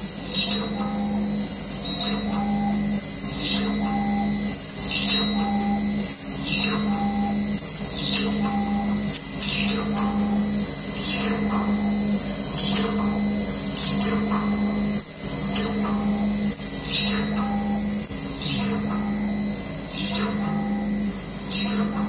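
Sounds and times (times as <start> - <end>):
drill cutting squeal: 0.0 - 22.0
machine hum: 0.0 - 22.0.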